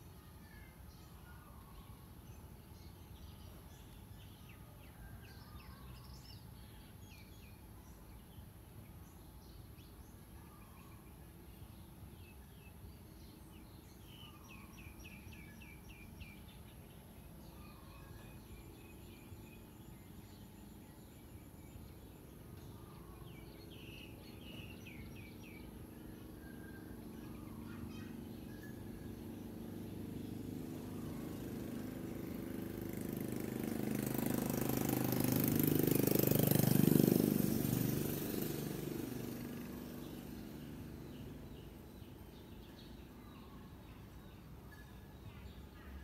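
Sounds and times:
bird chirps: 9.2 - 36.6
vehicle engine passing by: 17.3 - 44.4.

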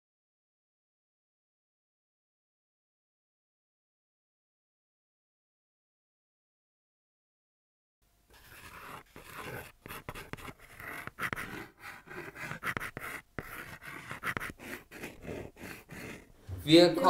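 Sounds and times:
chalk scratching and tapping: 8.3 - 16.4.

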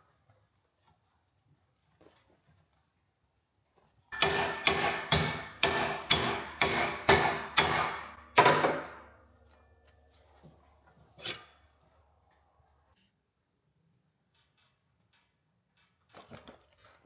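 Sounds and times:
hammer striking metal plate: 4.1 - 9.2.

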